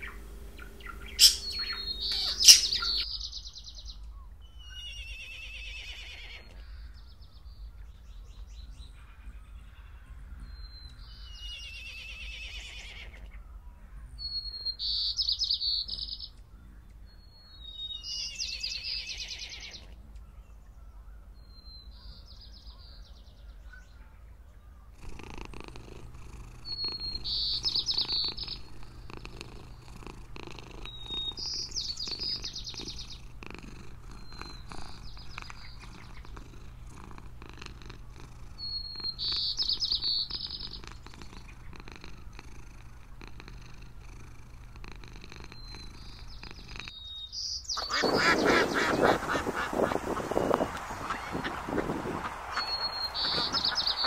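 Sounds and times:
geese calling: 0.0 - 3.1, 47.8 - 54.0
cat purring: 0.0 - 3.2, 24.9 - 47.2, 47.8 - 54.0
steady low hum: 0.0 - 5.1, 24.6 - 54.0
small bird chirping: 0.0 - 12.8, 14.2 - 20.4, 25.0 - 54.0.

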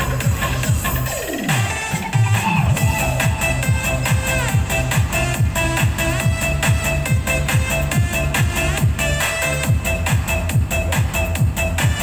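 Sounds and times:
kick drum beat: 2.6 - 12.0.

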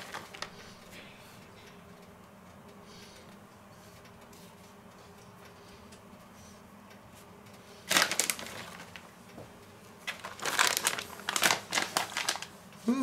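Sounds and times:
plastic bag crinkling: 0.0 - 0.8, 7.9 - 9.1, 10.0 - 12.6
faint room hum: 0.0 - 13.0.

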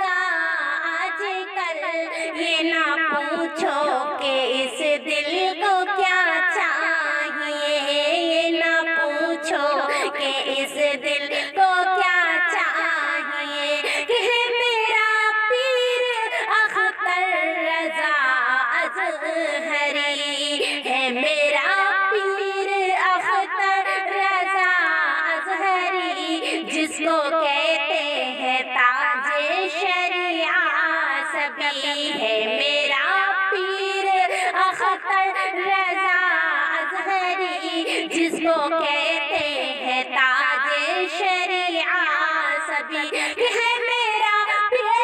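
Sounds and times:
woman singing devotional song: 0.0 - 45.0.

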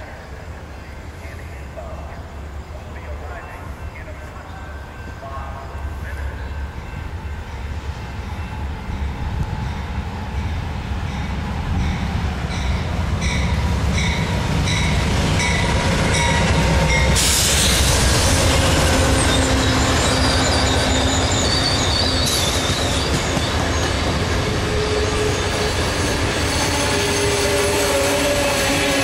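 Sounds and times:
train rumble: 0.0 - 29.0
crossing bell dinging: 4.1 - 17.2
wheel squeal: 18.6 - 24.0.

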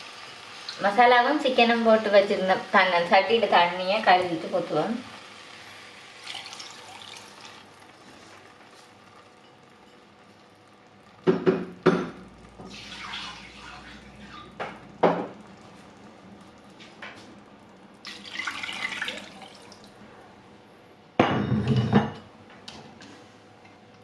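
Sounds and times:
water splashing into a pot: 6.2 - 7.9, 10.3 - 20.0
knocks of a vessel: 11.2 - 12.2.

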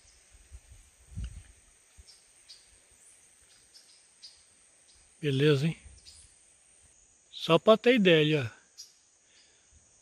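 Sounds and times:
high insect hum: 0.0 - 10.0
high bird chirps: 3.5 - 6.4.

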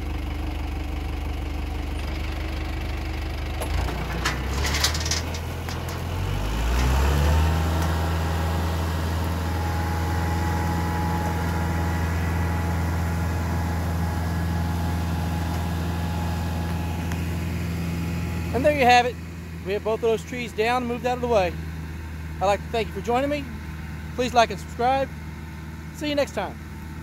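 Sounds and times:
tractor engine: 0.0 - 27.0
metallic clanks: 3.6 - 7.0
log dragging: 3.7 - 12.2.

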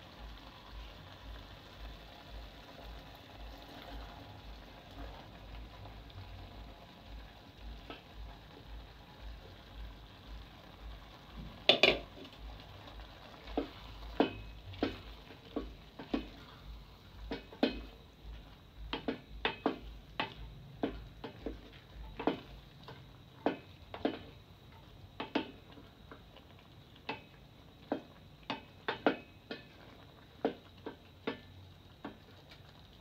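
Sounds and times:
spoon knocking metal pot: 11.6 - 12.1, 13.5 - 16.4, 17.2 - 24.3, 25.2 - 25.6.

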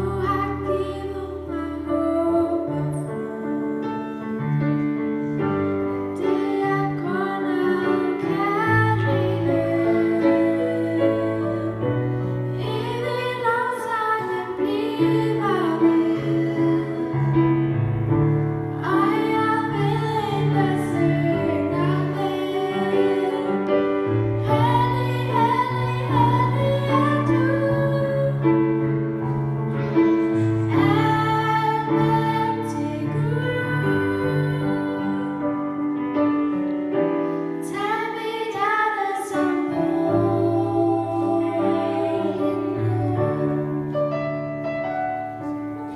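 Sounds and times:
piano chords: 0.0 - 45.9
female voices singing duet: 6.2 - 17.8, 18.8 - 28.8, 30.2 - 35.8, 37.6 - 44.0.

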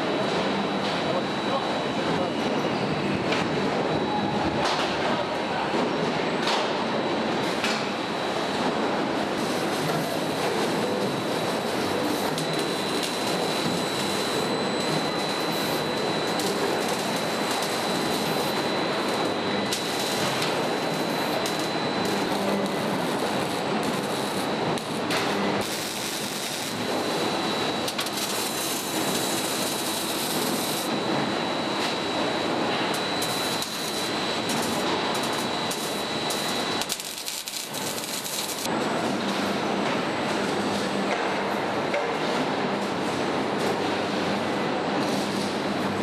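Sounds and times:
high steady whine: 6.7 - 41.2
steady low hum: 6.8 - 41.9
assembly line machinery din: 7.3 - 40.1
arc welder crackling: 9.3 - 38.8.

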